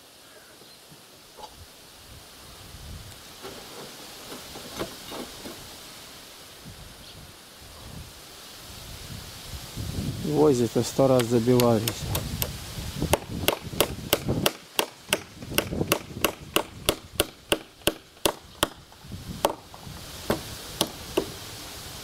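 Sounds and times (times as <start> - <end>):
hammer driving nails into wood: 11.1 - 18.8, 20.3 - 21.3.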